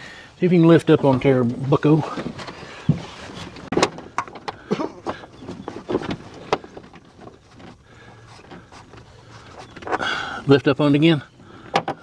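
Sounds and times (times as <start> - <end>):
car door hinge clicks and knocks: 11.7 - 12.0.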